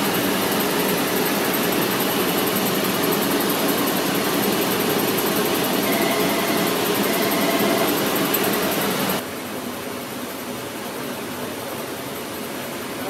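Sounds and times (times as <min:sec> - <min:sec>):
machinery and ventilation noise: 0:00.0 - 0:13.0
faint high whine: 0:04.6 - 0:09.2.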